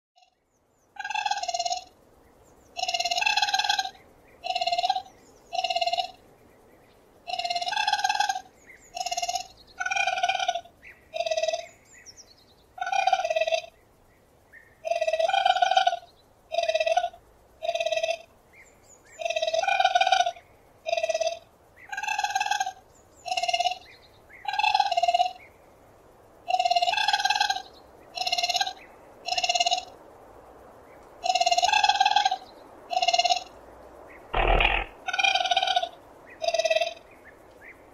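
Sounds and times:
raccoon chirping calls: 34.4s - 37.0s.

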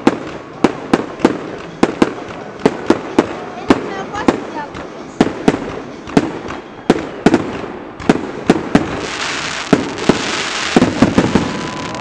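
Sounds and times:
fireworks bangs: 0.0s - 12.0s
fireworks hissing crackle: 8.5s - 12.0s.

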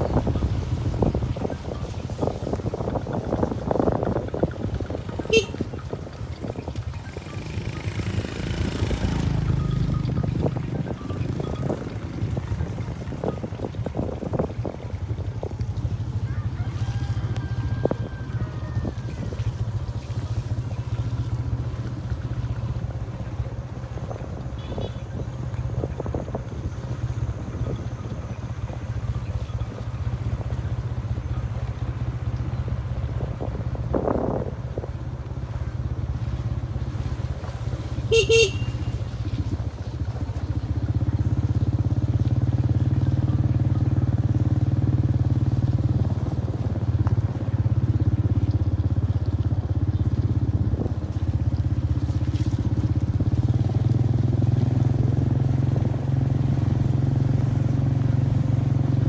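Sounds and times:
motorbike engine running: 0.0s - 59.0s
short horn beep: 5.2s - 5.7s, 38.1s - 39.1s.

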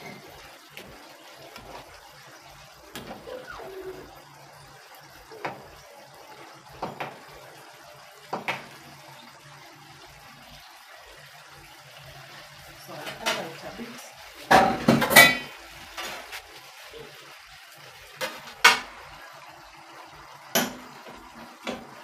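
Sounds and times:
stew bubbling in a pot: 0.0s - 22.0s
utensil clinking against pot: 14.5s - 16.2s.

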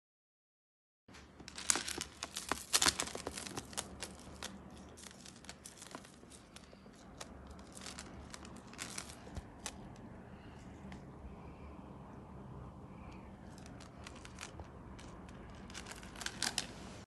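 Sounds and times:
metal beads clicking: 1.4s - 10.1s, 13.1s - 16.8s.

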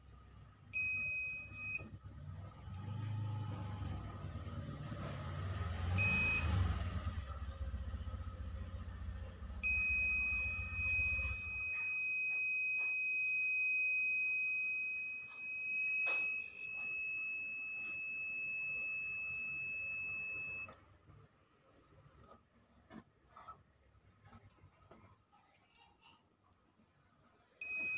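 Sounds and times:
continuity tester beep: 0.8s - 1.9s, 5.9s - 7.2s, 9.4s - 20.7s, 27.6s - 27.9s.

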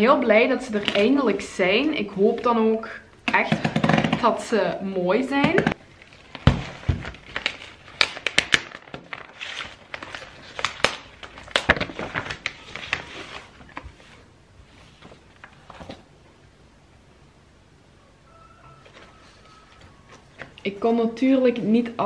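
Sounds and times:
paper wrapping tearing and crinkling: 6.0s - 14.2s
package thumping on table: 6.4s - 7.2s.

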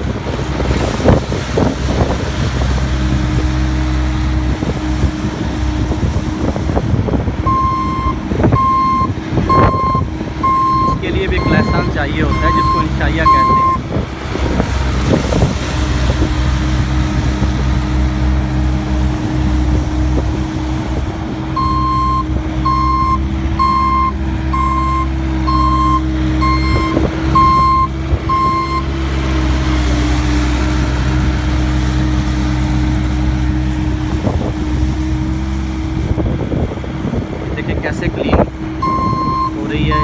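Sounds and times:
sweeper brushing road surface: 0.0s - 22.6s, 23.2s - 40.0s
diesel engine running: 0.0s - 40.0s
reversing alarm beeps: 7.5s - 13.8s, 21.6s - 28.9s, 38.8s - 40.0s.

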